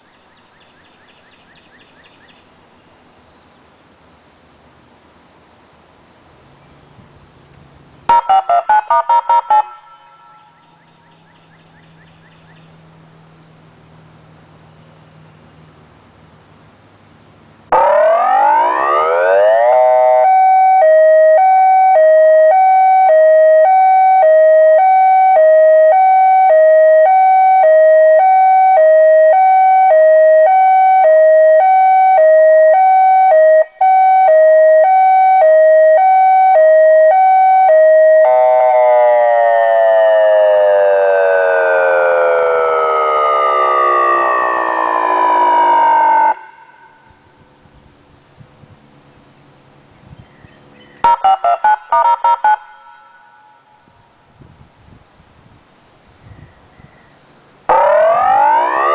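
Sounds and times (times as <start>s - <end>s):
loud electronic warning siren: 8.1s - 10.9s, 17.7s - 47.2s, 51.0s - 53.7s, 57.7s - 58.9s.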